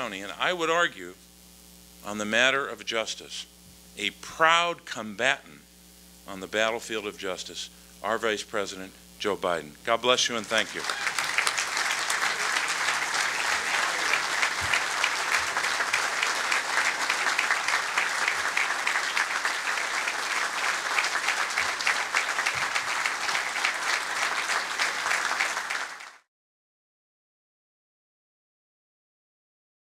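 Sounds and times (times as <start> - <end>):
large audience applauding: 10.4 - 26.3.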